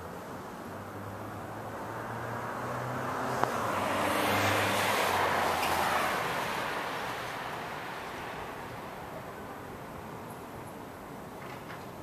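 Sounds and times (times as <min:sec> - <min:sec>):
car passing: 0:00.0 - 0:10.1.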